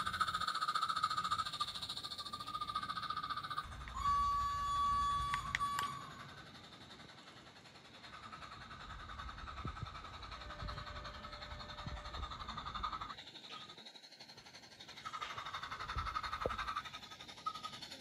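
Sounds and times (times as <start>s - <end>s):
train rumbling on track: 0.0s - 18.0s
model train whistle: 3.9s - 6.4s.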